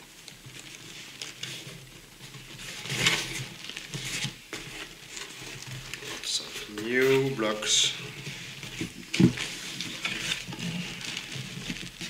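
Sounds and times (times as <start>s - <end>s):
cardboard box flaps rustling: 8.1s - 12.0s.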